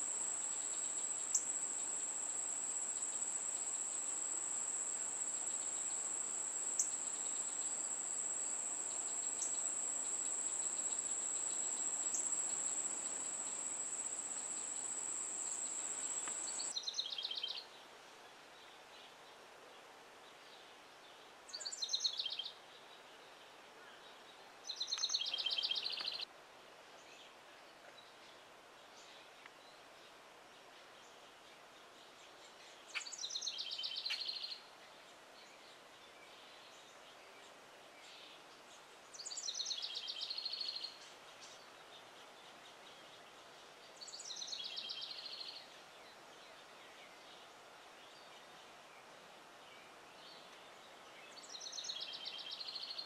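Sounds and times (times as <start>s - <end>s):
wren singing: 0.0s - 16.8s.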